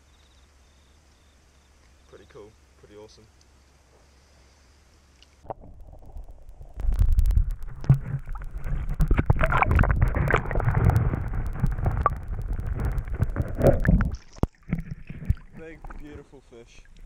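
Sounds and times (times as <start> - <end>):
muffled underwater stream rumbling: 5.4 - 17.0.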